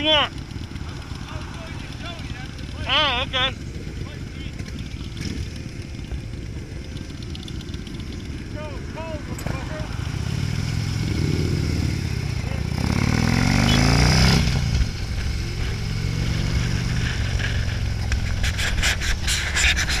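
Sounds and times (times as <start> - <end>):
motorcycle engine accelerating: 0.0 - 20.0
knocks and scraping near microphone: 16.4 - 20.0.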